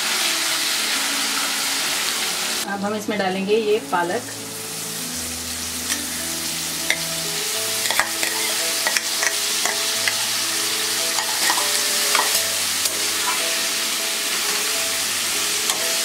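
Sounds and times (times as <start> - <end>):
spinach sizzling in hot oil: 0.0 - 16.0
spatula scraping and tapping pan: 7.8 - 10.3, 11.1 - 13.6.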